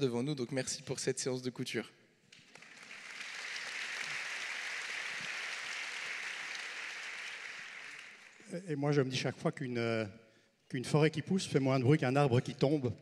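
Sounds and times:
audience applause: 0:02.4 - 0:08.5.

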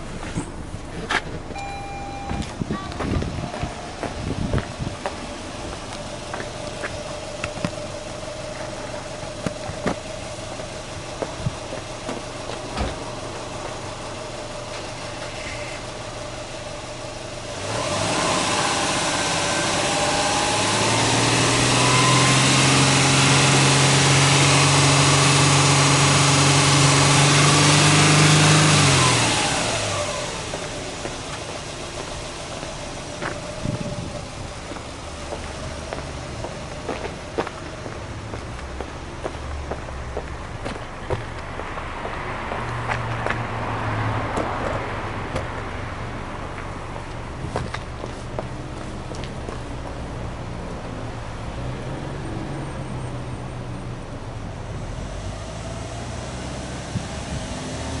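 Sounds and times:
car engine revving: 0:00.0 - 0:39.8, 0:54.7 - 0:58.0.

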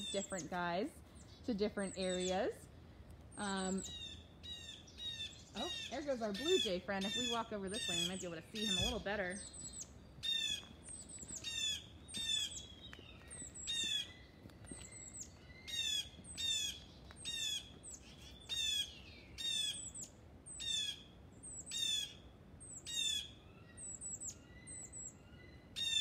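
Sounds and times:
blue jay calling: 0:00.0 - 0:02.7, 0:03.3 - 0:26.0.

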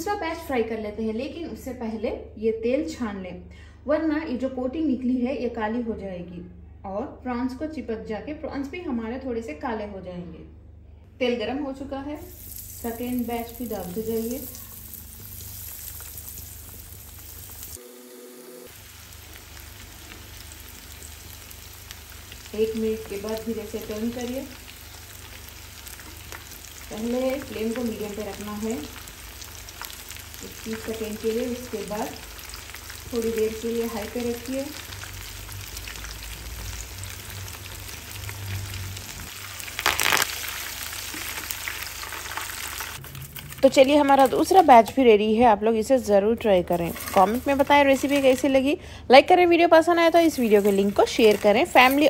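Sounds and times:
hot oil sizzling: 0:12.2 - 0:44.9, 0:46.7 - 0:48.7, 0:49.7 - 0:52.0
faint crackles: 0:38.0 - 0:44.6.

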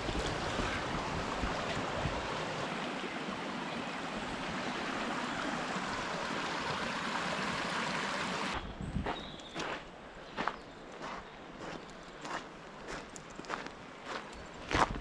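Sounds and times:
stream flowing over stones: 0:00.0 - 0:08.6.

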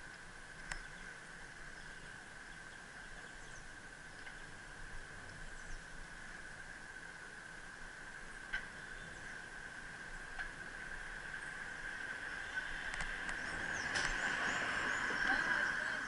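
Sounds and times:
faint ticks: 0:00.0 - 0:01.2, 0:04.1 - 0:04.6, 0:08.4 - 0:09.4, 0:10.2 - 0:10.9
bicycle rolling on paving: 0:08.8 - 0:16.0.

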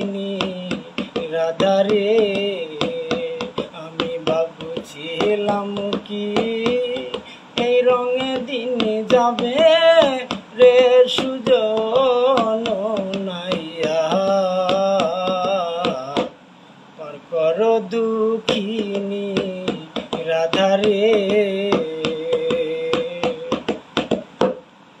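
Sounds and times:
sharp rhythmic clicks: 0:00.0 - 0:16.4, 0:17.9 - 0:24.6
man singing unaccompanied: 0:00.0 - 0:24.6.

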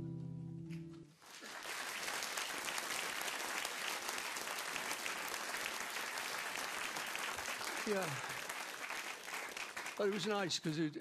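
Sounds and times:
acoustic guitar chord ringing: 0:00.0 - 0:01.0
audience applauding: 0:01.2 - 0:11.0.

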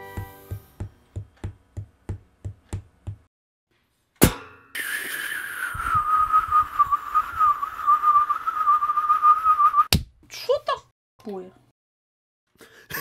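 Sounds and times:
sharp bang: 0:04.2 - 0:04.8
wavering whistled tone: 0:04.8 - 0:09.9.

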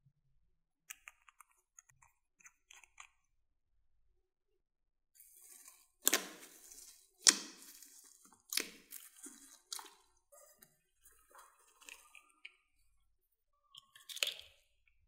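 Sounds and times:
slime squished by hand: 0:05.2 - 0:12.6.

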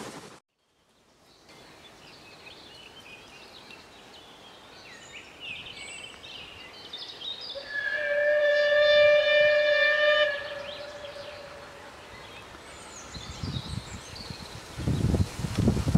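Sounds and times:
birds chirping and trilling: 0:00.6 - 0:08.3, 0:09.7 - 0:15.3
steam locomotive whistle: 0:07.6 - 0:11.6.

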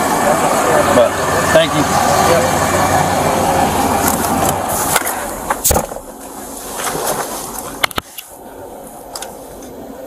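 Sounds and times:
car door shutting clicks: 0:04.1 - 0:06.1
low thump: 0:05.6 - 0:06.2.

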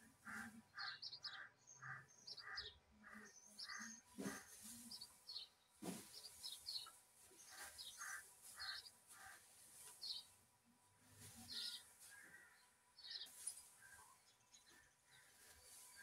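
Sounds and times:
dry straw rustling: 0:00.0 - 0:00.6, 0:04.2 - 0:16.0
small birds chirping: 0:00.0 - 0:16.0.

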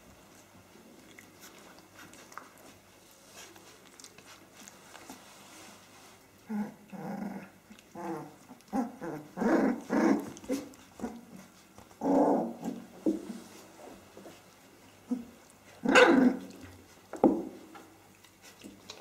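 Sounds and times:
puppies play-growling: 0:00.0 - 0:19.0.

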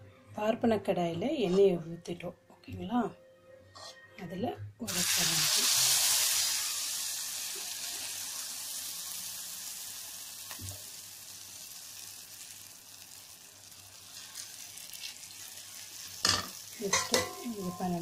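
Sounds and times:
batter sizzling in hot oil: 0:04.9 - 0:18.0.

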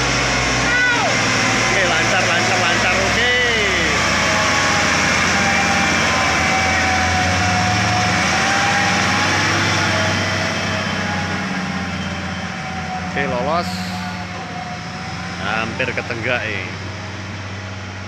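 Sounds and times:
diesel truck engine labouring: 0:00.0 - 0:18.0.

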